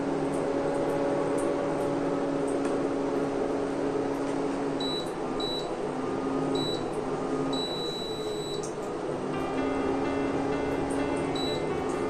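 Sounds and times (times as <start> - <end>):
low cooker hum: 0.0 - 12.0
induction cooktop beeping: 4.8 - 5.7, 6.6 - 6.9, 7.5 - 8.7, 10.1 - 12.0.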